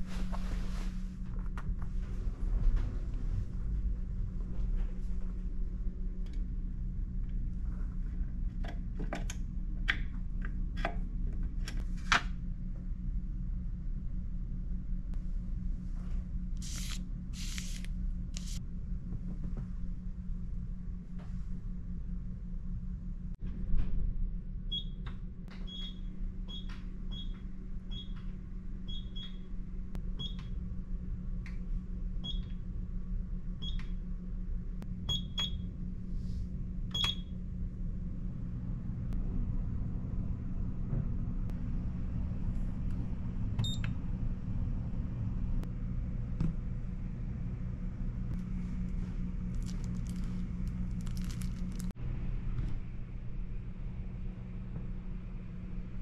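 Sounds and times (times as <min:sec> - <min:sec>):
steady low hum: 0:00.0 - 0:56.0
plastic crinkling: 0:49.4 - 0:51.9.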